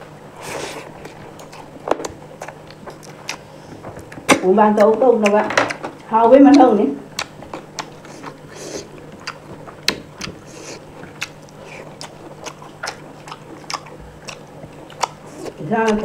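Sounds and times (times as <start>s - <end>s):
person chewing: 0.4s - 16.0s
wet mouth clicks and smacks: 6.5s - 8.4s.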